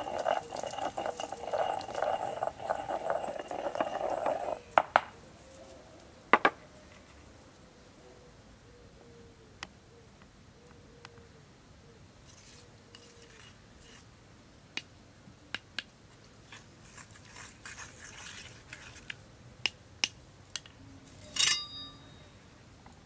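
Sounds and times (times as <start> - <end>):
wooden spoon scraping stone mortar: 0.0 - 5.0, 16.5 - 19.2.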